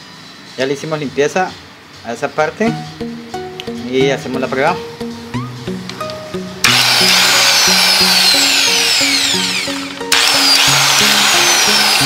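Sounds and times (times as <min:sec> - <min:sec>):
background music: 0:01.2 - 0:12.0
angle grinder motor whining: 0:06.6 - 0:12.0.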